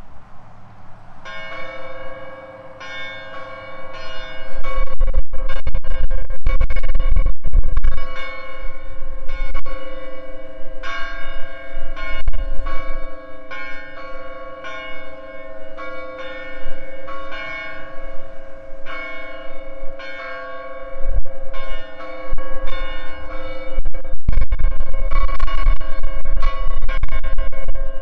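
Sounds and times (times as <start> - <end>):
church bells ringing: 1.2 - 28.0
wind gusts on microphone: 4.3 - 13.2, 16.6 - 28.0.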